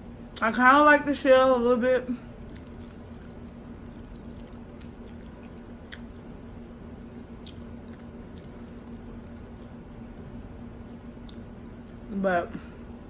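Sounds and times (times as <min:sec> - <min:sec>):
steady low hum: 0:00.0 - 0:13.0
person chewing food: 0:02.4 - 0:09.9, 0:11.1 - 0:12.1
wet mouth clicks: 0:02.5 - 0:06.3, 0:07.4 - 0:09.7, 0:11.2 - 0:11.5.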